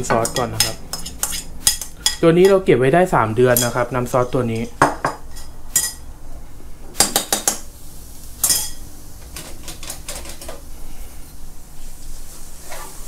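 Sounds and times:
metal utensils and dishes clinking: 0:08.4 - 0:08.8.

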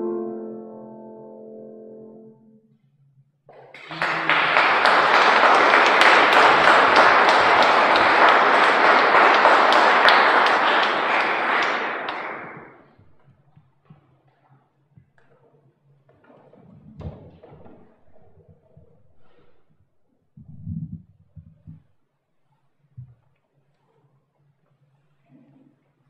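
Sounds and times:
audience applauding: 0:03.6 - 0:12.8.

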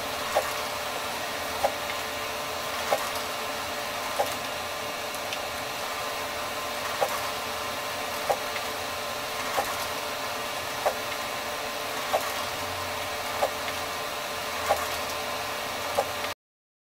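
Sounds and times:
printer mechanical hum: 0:00.0 - 0:16.4
printer sharp click: 0:14.6 - 0:15.2.

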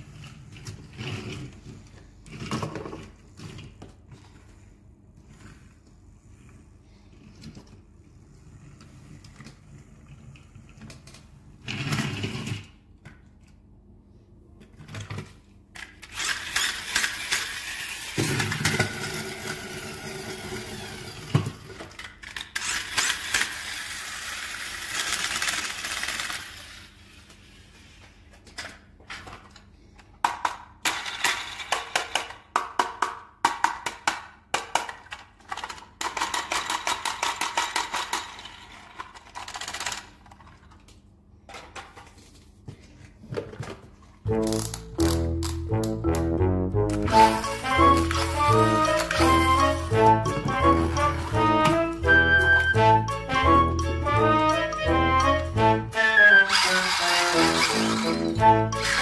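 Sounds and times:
plastic toy vehicles rattling: 0:14.8 - 0:27.6, 0:28.5 - 0:33.0, 0:33.6 - 0:42.4, 0:56.5 - 0:59.0.

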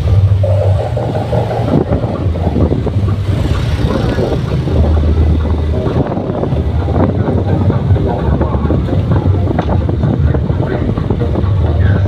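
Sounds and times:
motorbike engine running: 0:00.0 - 0:12.0
wind buffeting microphone: 0:00.0 - 0:12.0.

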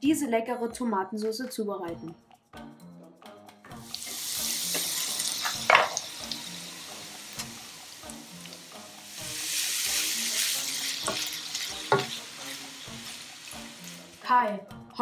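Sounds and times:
faint background music: 0:00.0 - 0:15.0
onion and sausage sizzling in a pan: 0:03.8 - 0:14.4.

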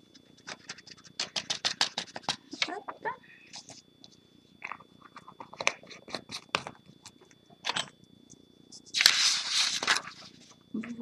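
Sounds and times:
paper crinkling: 0:08.8 - 0:10.6
loud paper rustle: 0:08.9 - 0:10.4.

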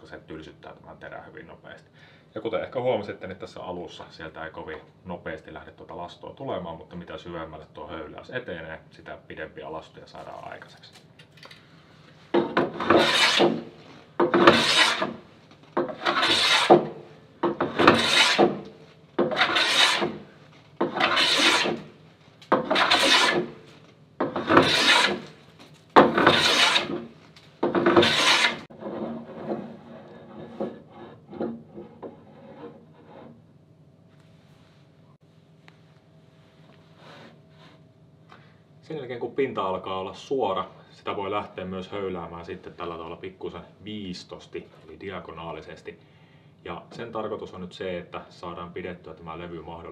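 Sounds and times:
hand plane rasping on wood: 0:12.6 - 0:15.2, 0:15.8 - 0:20.2, 0:20.8 - 0:21.9, 0:22.6 - 0:23.5, 0:24.2 - 0:25.3, 0:26.0 - 0:27.0, 0:27.7 - 0:33.3.

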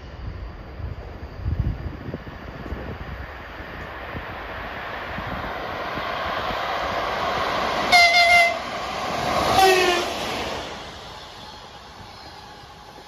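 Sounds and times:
electric locomotive passing: 0:00.0 - 0:13.0
rail and wheel noise: 0:00.0 - 0:13.0
locomotive horn blast: 0:07.9 - 0:08.7, 0:09.5 - 0:10.2.

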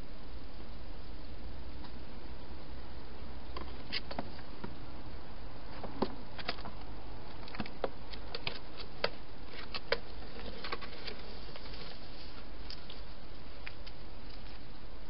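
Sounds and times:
steady hiss: 0:07.9 - 0:15.0.

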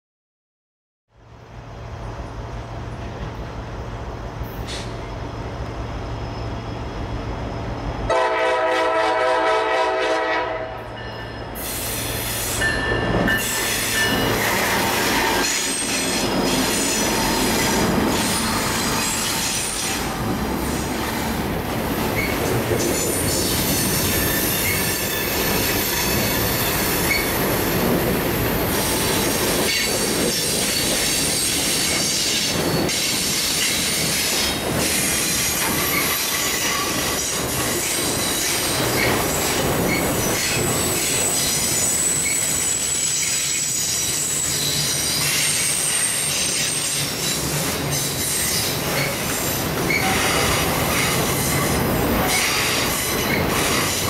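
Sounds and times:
diesel locomotive engines running: 0:01.2 - 0:54.0
train wheels squealing: 0:04.5 - 0:08.1, 0:10.9 - 0:20.9, 0:22.1 - 0:27.7, 0:28.6 - 0:54.0
locomotive horn: 0:08.1 - 0:10.9
wheels clacking over rail joints: 0:12.6 - 0:54.0.

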